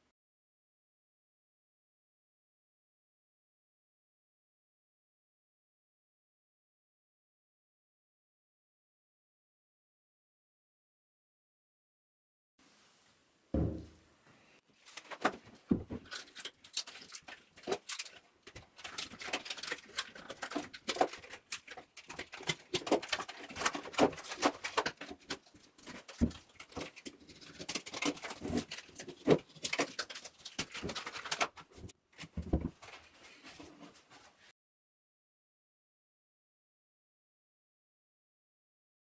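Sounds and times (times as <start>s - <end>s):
mould thumping on wooden table: 13.6s - 14.0s
plastic bag crinkling and tearing: 16.0s - 31.9s.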